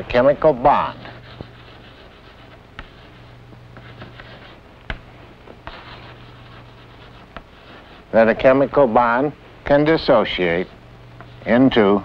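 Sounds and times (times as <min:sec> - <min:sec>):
steady low hum: 0:00.0 - 0:12.0
chalk scratching on blackboard: 0:00.6 - 0:05.0, 0:05.6 - 0:08.2
chalk tapping on blackboard: 0:01.2 - 0:08.0.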